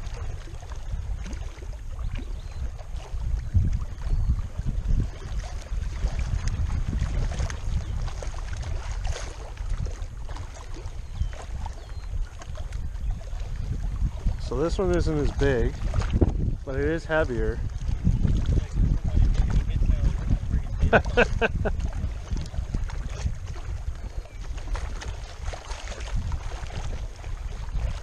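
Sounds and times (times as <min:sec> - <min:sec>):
water lapping at rocky shore: 0:00.0 - 0:28.0
wind buffeting microphone: 0:00.0 - 0:28.0.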